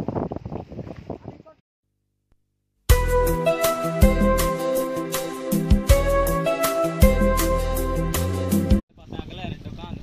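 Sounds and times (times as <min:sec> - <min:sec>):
background music with a beat: 0:02.9 - 0:08.8.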